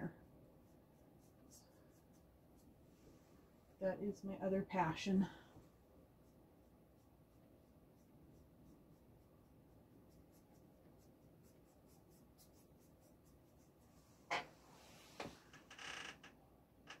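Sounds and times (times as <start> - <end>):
paintbrush strokes on a panel: 0.5 - 3.5, 6.0 - 15.4.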